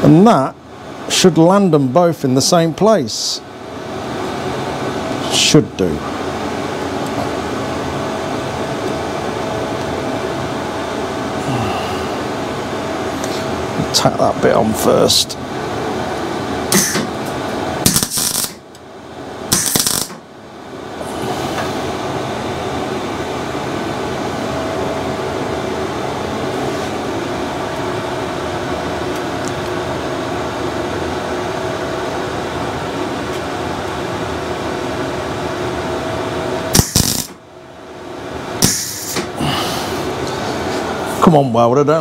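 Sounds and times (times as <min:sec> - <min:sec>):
steady workshop hum: 0:00.0 - 0:42.0
welder arc crackle: 0:16.7 - 0:17.1, 0:17.8 - 0:18.8, 0:19.5 - 0:20.3, 0:36.7 - 0:37.4, 0:38.6 - 0:39.3.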